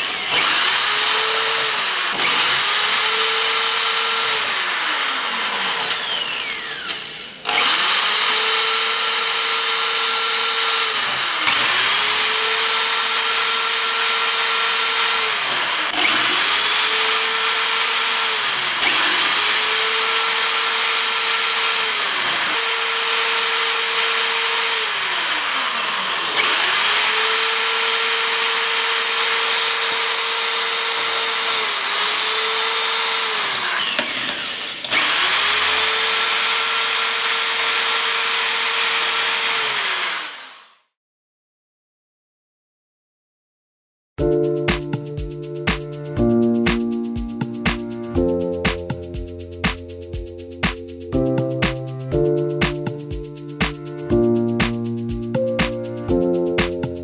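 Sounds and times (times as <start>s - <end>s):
electric drill grinding through glass: 0.0s - 40.9s.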